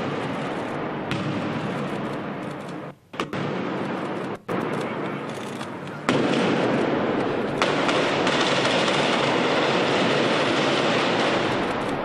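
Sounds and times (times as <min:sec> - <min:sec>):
gunfire and stun grenades: 0:00.0 - 0:12.0
rapid shots and bangs: 0:06.0 - 0:12.0.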